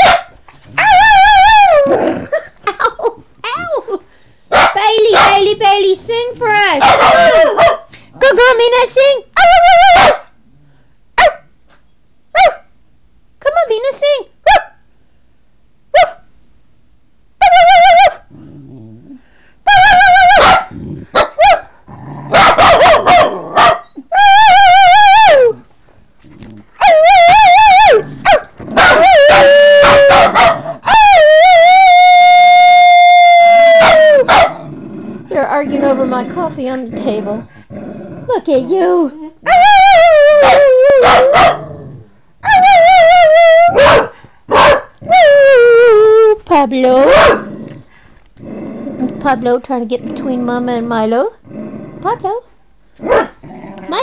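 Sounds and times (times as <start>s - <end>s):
dog howling: 0.8s - 2.1s, 22.4s - 25.6s, 26.8s - 34.5s, 39.4s - 41.8s, 42.4s - 44.0s, 45.0s - 46.4s
dog yelping: 6.7s - 7.8s, 9.4s - 10.2s, 17.4s - 18.3s, 19.7s - 21.7s, 22.3s - 25.6s, 26.8s - 31.3s, 33.8s - 34.6s, 39.4s - 41.7s, 42.4s - 45.3s, 46.9s - 47.5s, 53.1s - 54.0s.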